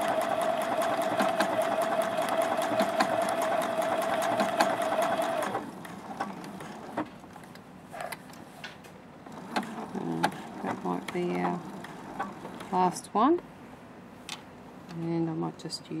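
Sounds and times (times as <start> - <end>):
sewing machine stitching: 0.0 - 7.1, 9.3 - 13.0.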